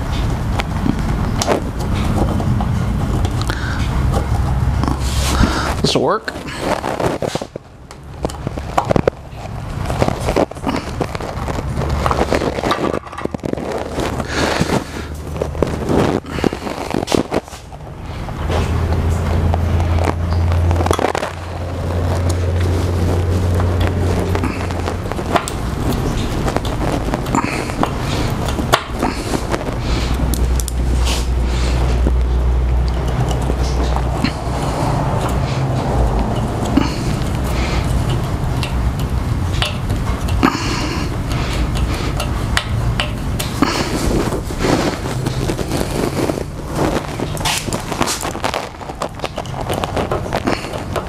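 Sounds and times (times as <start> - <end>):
steady low hum: 0.0 - 51.0
clicks and taps of parts: 36.0 - 44.0.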